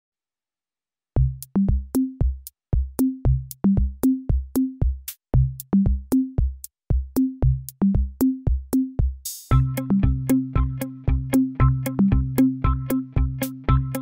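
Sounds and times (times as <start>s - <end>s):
deep bass drum notes: 1.2s - 13.9s
drum machine ticks: 1.2s - 14.0s
electronic music: 9.4s - 14.0s.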